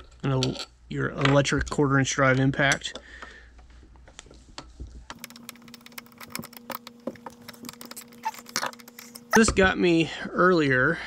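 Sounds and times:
faint steady hum: 2.2 - 11.0.

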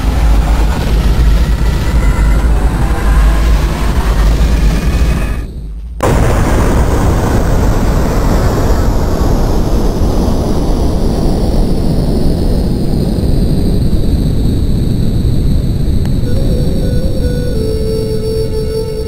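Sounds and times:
explosion rumbling blast: 0.0 - 18.5.

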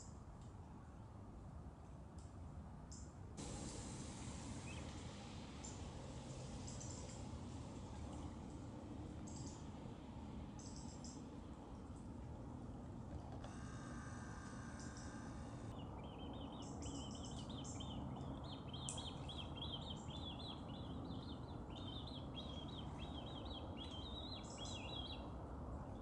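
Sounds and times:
outdoor background noise: 0.0 - 26.0
birds chirping: 4.5 - 7.3, 13.5 - 25.3
high ringing tone: 13.4 - 15.7.

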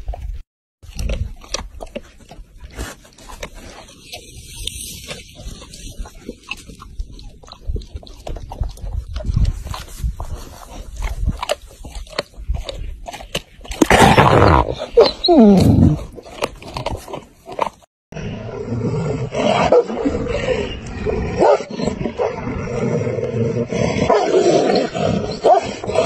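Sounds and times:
dogs chewing and tearing meat: 0.8 - 14.0
rough growling and snarling: 0.8 - 26.0.

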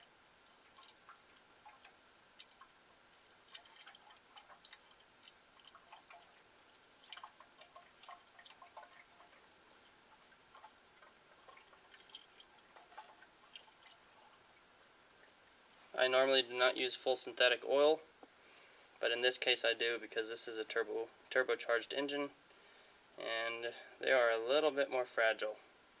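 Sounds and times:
oil glugging and dripping: 0.0 - 15.6.

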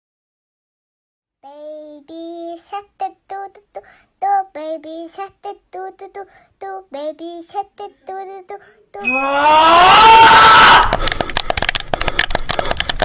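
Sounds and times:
high childlike voice singing: 1.4 - 9.6.

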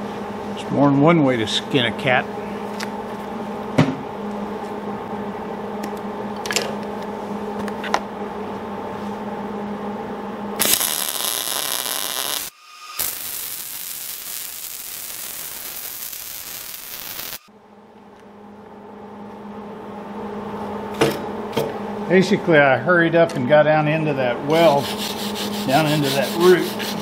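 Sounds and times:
steady electrical hum: 0.0 - 27.0
welding arc crackling hiss: 10.6 - 17.5.

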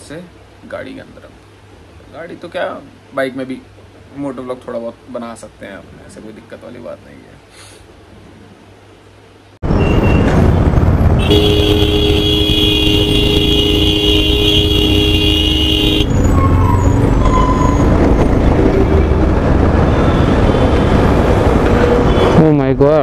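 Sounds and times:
road traffic: 0.0 - 23.0
motorcycle engine: 9.6 - 22.3
vehicle horn held: 11.2 - 16.1.

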